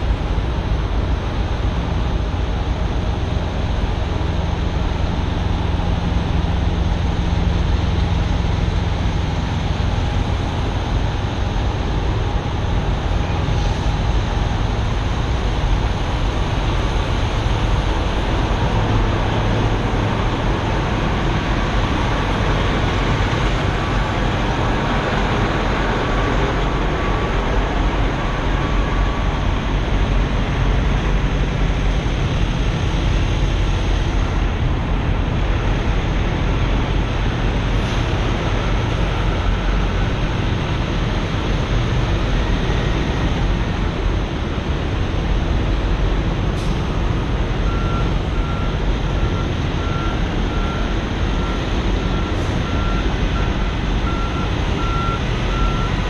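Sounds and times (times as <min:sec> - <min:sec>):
diesel truck engines idling: 0:00.0 - 0:56.0.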